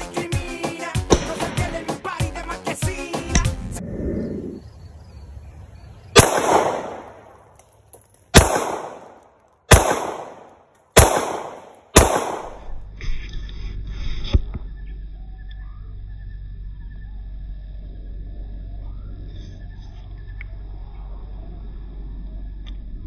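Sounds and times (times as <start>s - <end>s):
handgun shots: 1.1s - 1.8s, 6.2s - 7.4s, 8.3s - 12.7s
steady low rumble: 3.3s - 7.6s, 8.4s - 23.0s.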